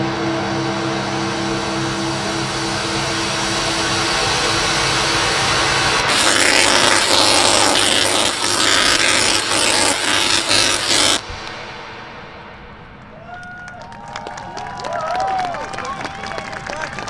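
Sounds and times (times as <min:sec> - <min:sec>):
steady hiss: 0:00.0 - 0:13.2
held tones: 0:00.4 - 0:13.2
tesla coil sparks buzzing: 0:00.8 - 0:11.7.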